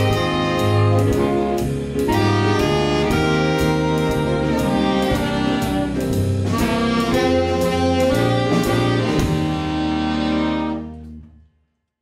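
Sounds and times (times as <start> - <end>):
jazz band playing: 0.0 - 11.4.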